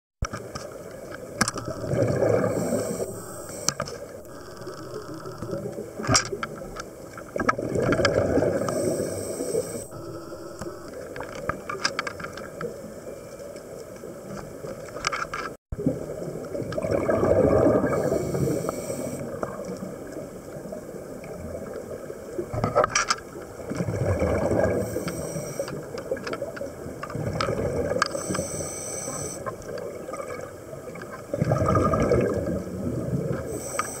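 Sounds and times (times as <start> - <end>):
bubbly exhalation underwater: 1.6 - 3.5, 7.4 - 9.0, 15.8 - 18.3, 23.6 - 24.9, 31.3 - 33.4
regulator inhalation hiss: 1.6 - 5.6, 8.6 - 10.9, 18.0 - 19.3, 24.8 - 25.8, 28.1 - 29.5, 33.5 - 34.0
small clicks: 13.3 - 15.6, 24.9 - 29.9, 33.4 - 34.0.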